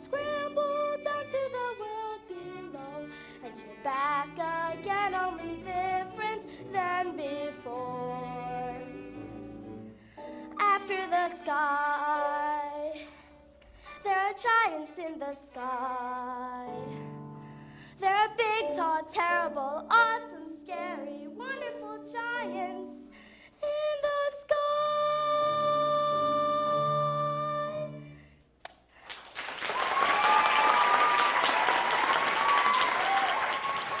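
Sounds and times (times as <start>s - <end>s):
audience applause and cheering: 29.0s - 34.0s.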